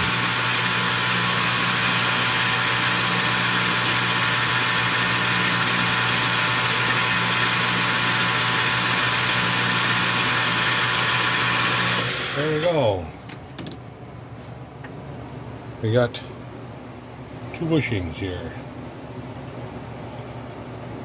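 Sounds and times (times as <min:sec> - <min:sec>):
metal lathe humming: 0:00.0 - 0:12.7.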